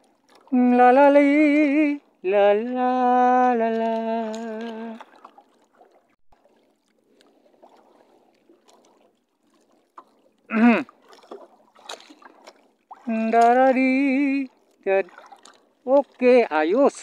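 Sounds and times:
water sloshing: 0.0s - 17.0s
man humming: 10.5s - 10.9s.

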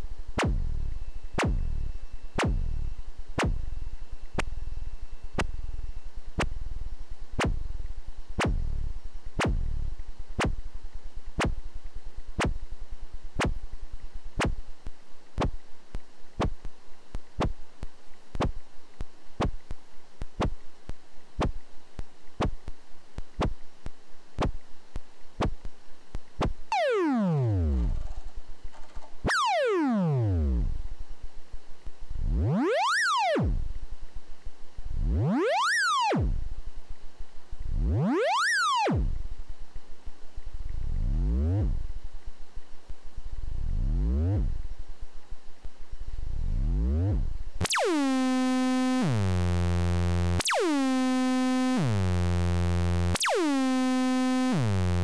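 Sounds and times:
clicky synthesizer blips: 0.4s - 0.7s, 1.4s - 1.7s, 2.4s - 2.8s, 3.4s - 4.6s, 7.4s - 7.6s, 9.4s - 9.7s, 10.4s - 10.6s, 11.4s - 11.6s, 14.4s - 24.6s, 25.4s - 27.9s, 46.8s - 55.0s
synthesizer tones sweeping down: 26.7s - 28.0s, 46.5s - 55.0s.

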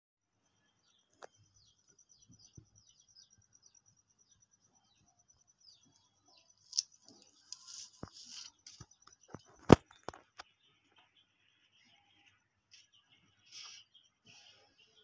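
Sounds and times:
small birds chirping: 0.3s - 15.0s.

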